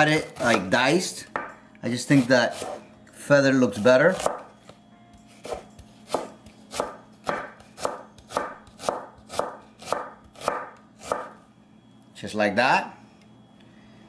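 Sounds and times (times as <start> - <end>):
knife slicing onion: 0.0 - 0.8, 1.9 - 2.8, 3.8 - 4.5, 5.3 - 11.4.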